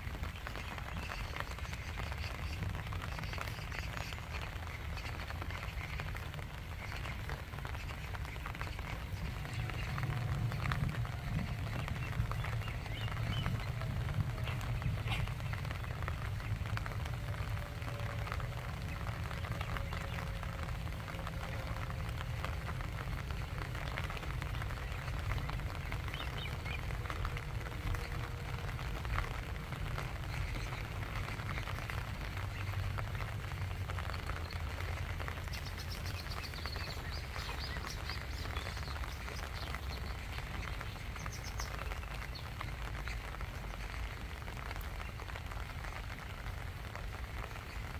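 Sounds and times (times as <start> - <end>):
rain on water: 0.0 - 47.9
low rumble: 6.7 - 44.8.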